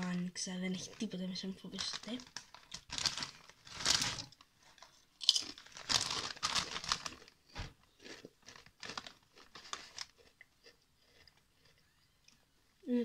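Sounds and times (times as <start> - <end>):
plastic snack bag crinkling: 0.7 - 10.4
chewing crunchy snack: 5.2 - 12.4.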